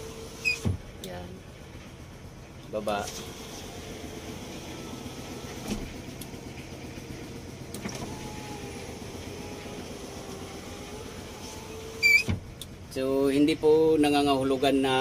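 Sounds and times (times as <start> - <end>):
power window motor running: 0.0 - 1.3, 2.8 - 13.0
short squeal: 0.4 - 0.7, 12.0 - 12.3.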